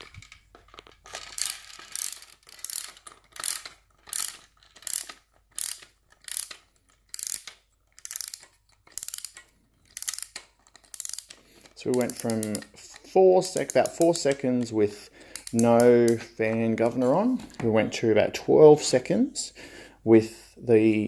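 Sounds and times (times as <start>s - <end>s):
clock ratchet clicking: 1.3s - 16.6s.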